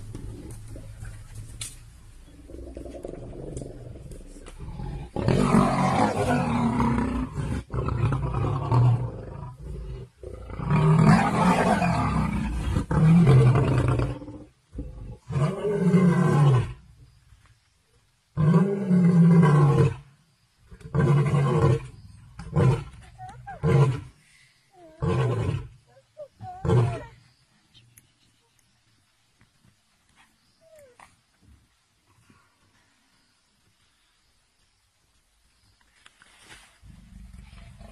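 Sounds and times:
lion roaring: 2.4 - 16.8.

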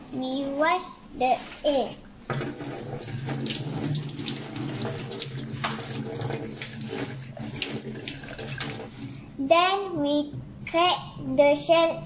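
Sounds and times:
tap running into steel sink: 2.3 - 9.1.

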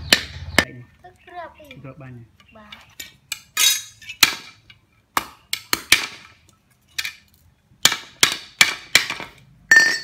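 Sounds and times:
metal pipe hammering metal rod: 7.8 - 10.0.

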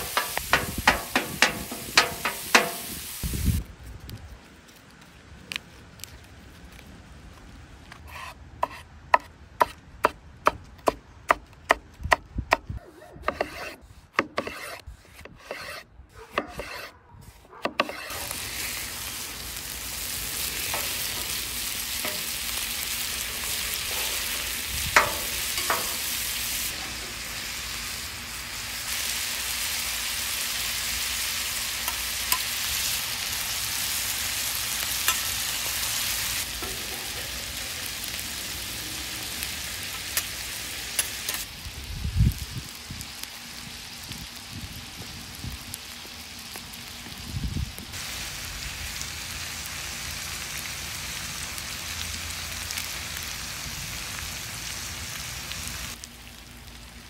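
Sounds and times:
meat sizzling on griddle: 0.0 - 3.6, 17.8 - 57.0
metal spatulas scraping: 8.0 - 9.3, 13.2 - 18.4.

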